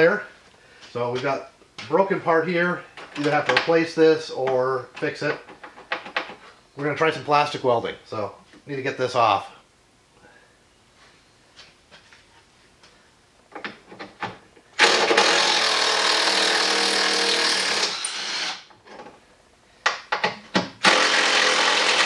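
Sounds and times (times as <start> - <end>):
power driver running: 14.8 - 18.6, 20.8 - 22.0.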